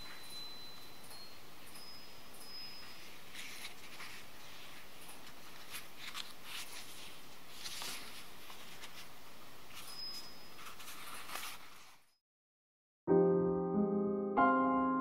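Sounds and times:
book pages rustling: 0:03.0 - 0:12.1.

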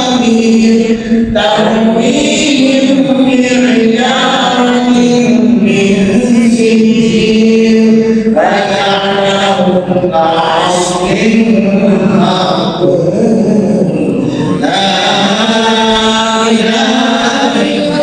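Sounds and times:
women chanting recitation: 0:08.4 - 0:18.0.

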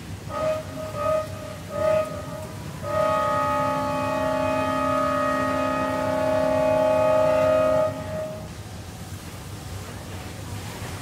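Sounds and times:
multi-note horn blast: 0:00.3 - 0:08.5.

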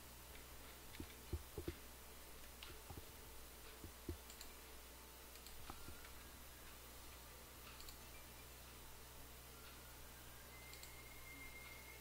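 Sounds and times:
low electrical hum: 0:00.0 - 0:12.0
computer mouse clicks: 0:00.3 - 0:01.8, 0:03.7 - 0:04.6, 0:05.3 - 0:06.2, 0:07.6 - 0:08.1, 0:10.7 - 0:11.0.

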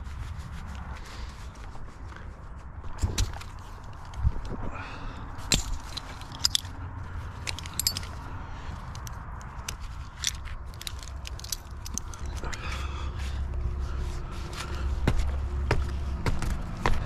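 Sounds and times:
metal carabiners clinking: 0:05.4 - 0:12.9.

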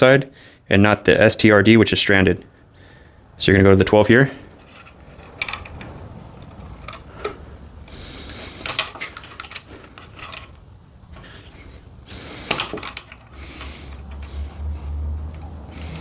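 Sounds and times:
wire strippers stripping wire: 0:04.1 - 0:14.5.

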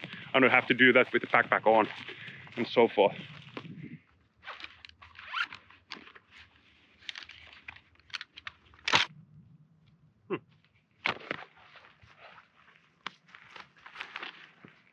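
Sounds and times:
nylon fabric rustling: 0:00.7 - 0:07.7, 0:11.4 - 0:14.9.

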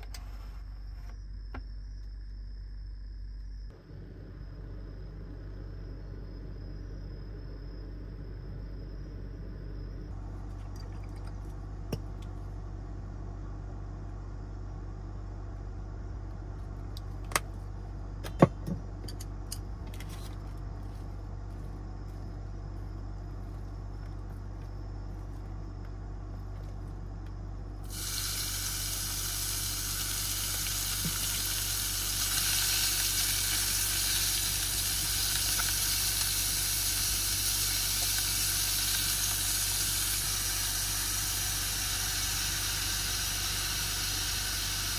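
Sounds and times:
low steady hum: 0:00.0 - 0:44.9
meat sizzling in a pot: 0:27.9 - 0:44.9.

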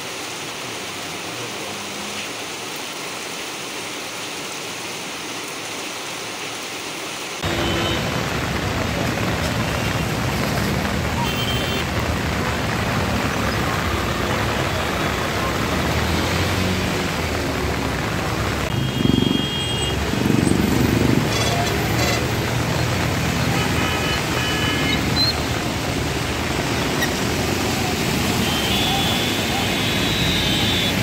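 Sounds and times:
heavy rain: 0:00.0 - 0:31.0
vehicles rumbling past: 0:12.0 - 0:31.0
car horn blasts: 0:28.4 - 0:31.0.

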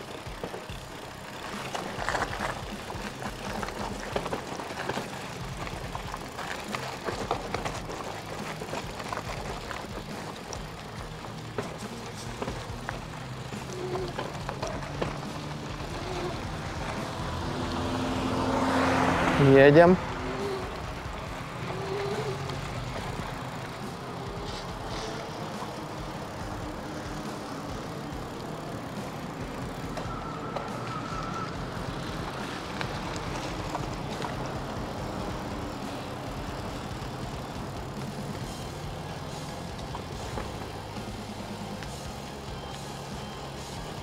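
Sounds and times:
bicycle tyres on road: 0:00.0 - 0:44.0
faint whistle: 0:30.0 - 0:31.6.

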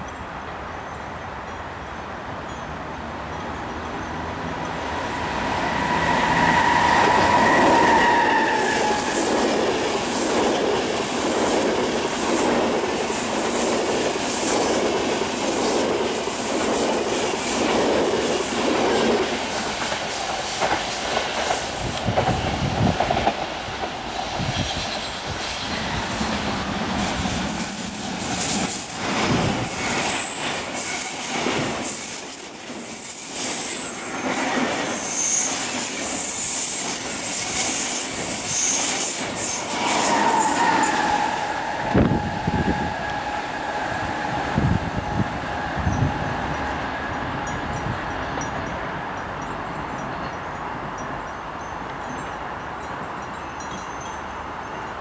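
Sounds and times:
train wheels rumbling: 0:03.5 - 0:50.2
high-pitched wheel squeal: 0:04.8 - 0:09.6, 0:26.8 - 0:46.6.

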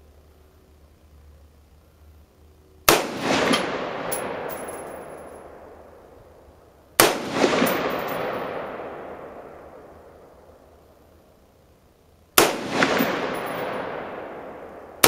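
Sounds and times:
rifle shots with echo: 0:02.9 - 0:06.0, 0:07.0 - 0:10.4, 0:12.4 - 0:15.0.

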